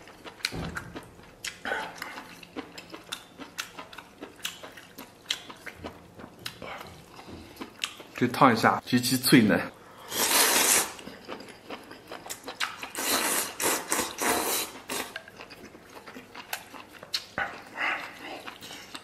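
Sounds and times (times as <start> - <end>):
crunchy chewing: 0.0 - 8.2
person slurping: 10.0 - 11.1, 12.8 - 15.2.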